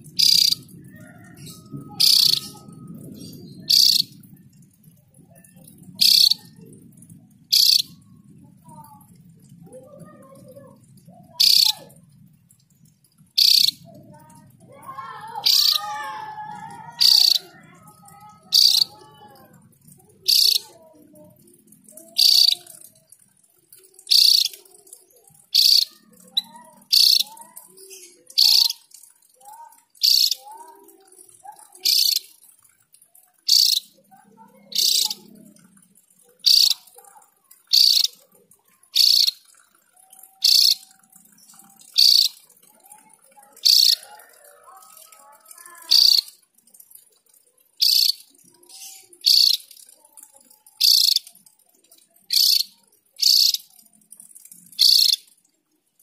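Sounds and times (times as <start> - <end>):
bird calling high bright notes: 0.1 - 4.3, 5.4 - 6.6, 7.5 - 8.8, 11.3 - 12.0, 13.3 - 13.9, 14.7 - 20.8, 22.0 - 22.9, 34.7 - 35.4, 36.4 - 36.9.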